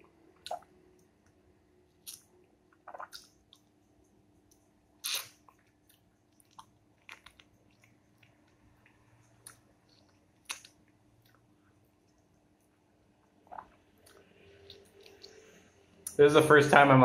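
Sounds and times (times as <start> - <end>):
person eating slurping fruit: 5.0 - 5.4.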